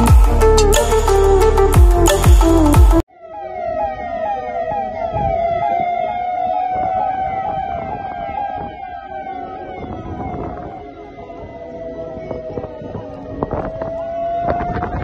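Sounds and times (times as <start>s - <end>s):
music: 0.0s - 3.0s
electronic siren wailing: 0.0s - 15.0s.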